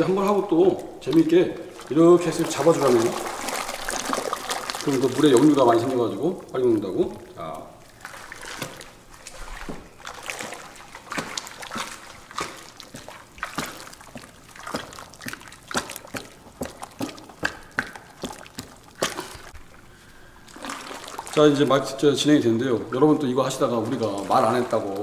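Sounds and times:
short splashes: 0.0 - 19.8, 20.4 - 25.0
liquid sloshing in plastic tub: 0.0 - 25.0.

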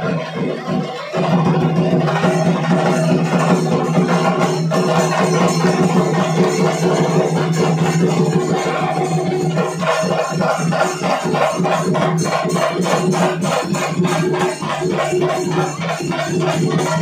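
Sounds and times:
drums in fast dense rhythm: 0.0 - 17.0.

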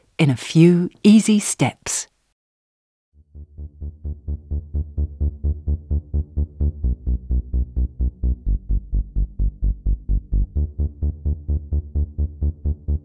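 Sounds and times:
electronic music with steady beat: 3.8 - 13.0.

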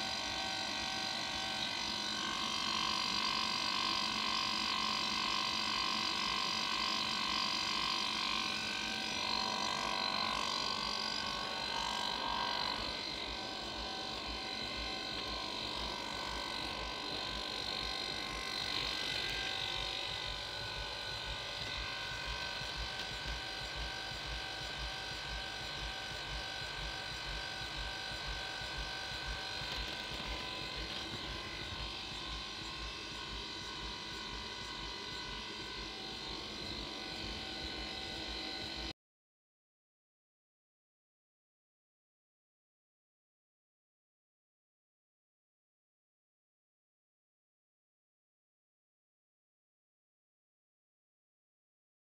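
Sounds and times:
compressor humming: 0.0 - 38.9.

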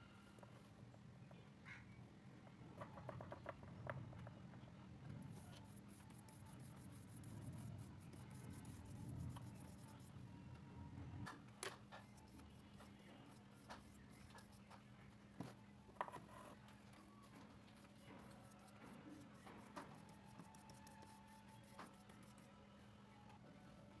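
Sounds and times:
paintbrush rubbing on paper: 5.3 - 10.2, 12.0 - 14.7, 17.7 - 22.5.

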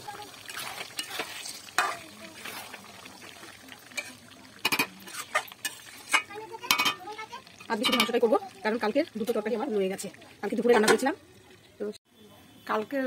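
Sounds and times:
frying sizzle: 0.0 - 12.0
spatula scraping metal pan: 0.4 - 2.8, 4.0 - 8.3.

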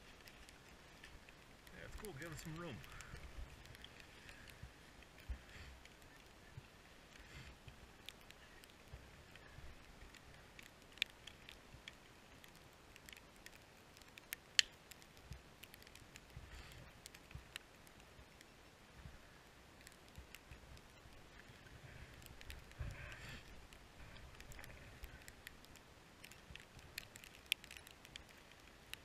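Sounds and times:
plastic ski helmet clicks and taps: 14.2 - 15.4.

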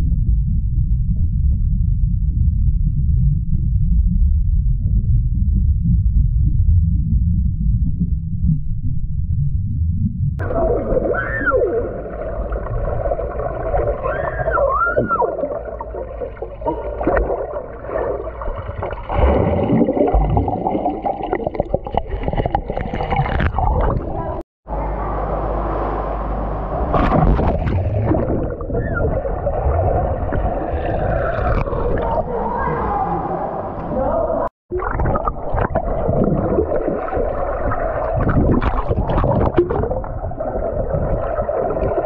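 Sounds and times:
underwater pool gurgling and splashing: 7.0 - 24.4, 26.8 - 33.9, 34.7 - 42.0.

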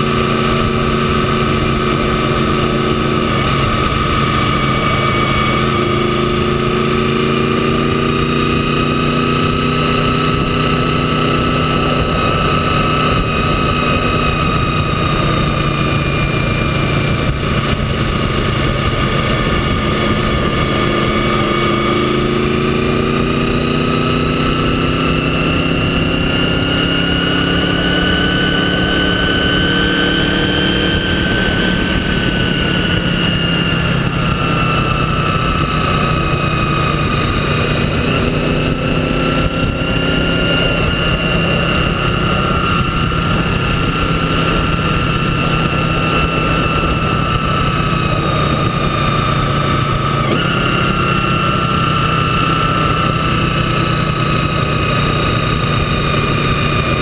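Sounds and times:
wind rushing: 0.0 - 54.5
motorcycle engine running: 0.0 - 57.0
road noise: 0.0 - 57.0.

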